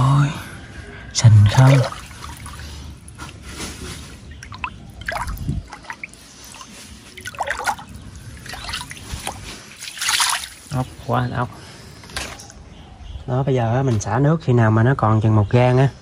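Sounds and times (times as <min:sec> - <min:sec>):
water gurgles and drips: 0:01.4 - 0:10.9
water sloshing by hand: 0:01.4 - 0:10.9.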